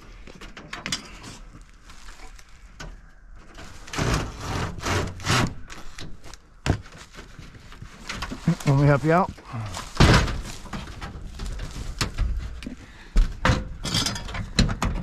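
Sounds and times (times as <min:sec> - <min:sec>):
tool scraping and clicking on wood: 0:03.5 - 0:08.8.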